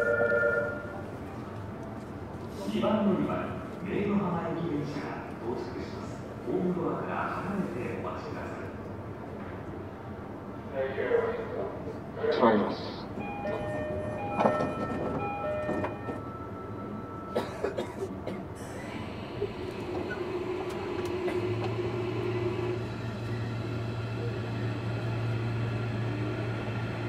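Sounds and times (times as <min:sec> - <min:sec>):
electric train low drone: 0:00.0 - 0:06.6, 0:12.0 - 0:17.4, 0:18.5 - 0:27.0.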